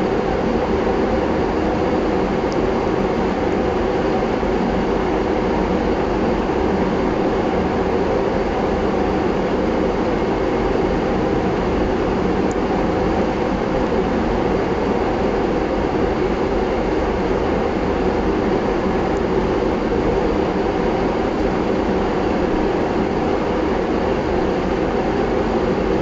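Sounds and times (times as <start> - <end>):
machine hum with rushing noise: 0.0 - 26.0.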